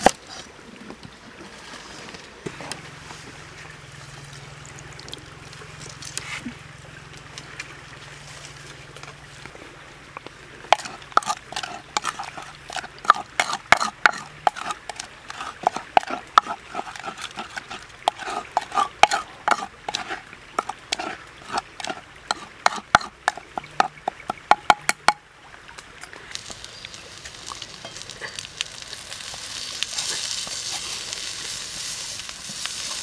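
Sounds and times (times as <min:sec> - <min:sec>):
pestle pounding in wooden mortar: 0:10.7 - 0:25.2.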